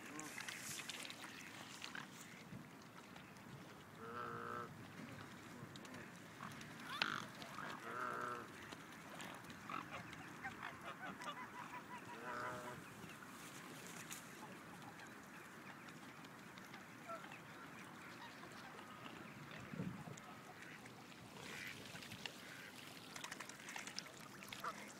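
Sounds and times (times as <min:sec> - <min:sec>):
geese honking: 0:09.8 - 0:12.9.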